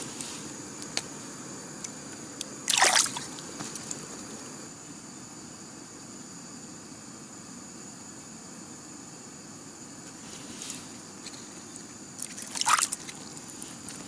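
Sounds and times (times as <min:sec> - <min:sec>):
steady hiss: 0:00.0 - 0:14.0
water splash: 0:02.7 - 0:03.4, 0:12.2 - 0:13.2.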